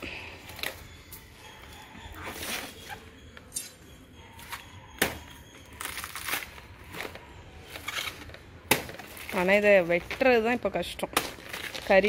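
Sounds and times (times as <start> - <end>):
crackling tearing rustles: 5.8 - 10.5, 11.1 - 12.0.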